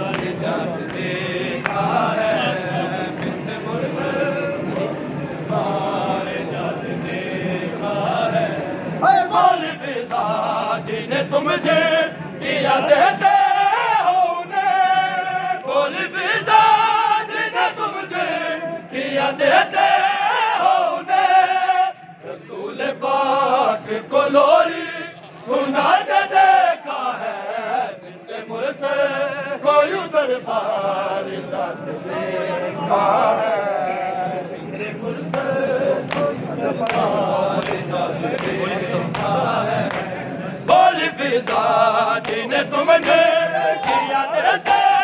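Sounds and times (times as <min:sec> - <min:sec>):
men chanting together: 0:00.0 - 0:45.0
man leading a chant: 0:40.7 - 0:45.0.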